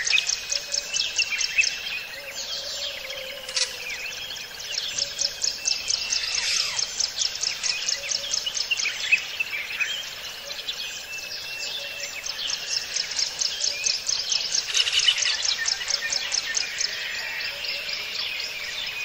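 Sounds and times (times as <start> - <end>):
bird calls and chirps: 0.0 - 19.0
insect calling in fast pulses: 6.0 - 7.0, 14.7 - 15.3.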